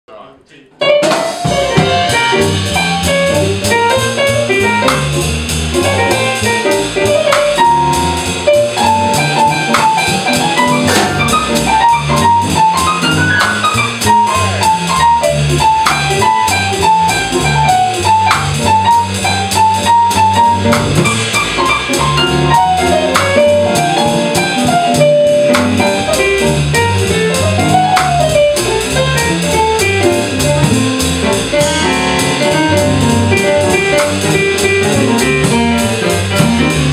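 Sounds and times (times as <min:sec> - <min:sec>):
upright bass walking: 0:00.5 - 0:36.9
electric keyboard melody: 0:00.8 - 0:36.9
drum kit cymbals: 0:00.9 - 0:36.9.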